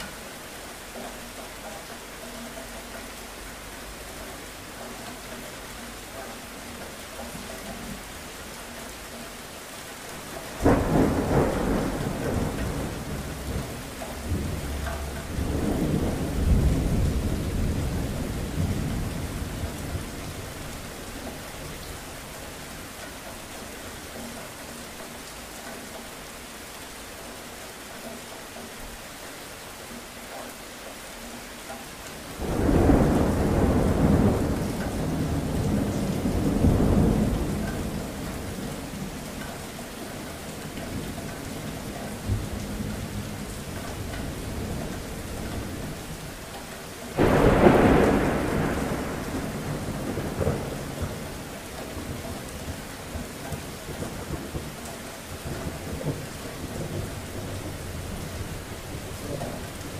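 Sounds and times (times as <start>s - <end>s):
steady rain: 0.0s - 59.9s
thunder rumbling: 10.5s - 22.8s, 32.4s - 39.4s, 47.1s - 59.9s.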